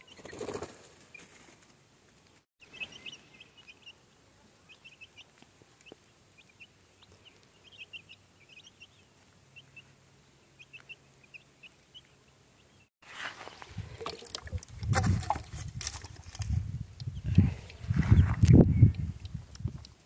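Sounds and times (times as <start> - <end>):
chicks peeping: 2.6 - 12.9.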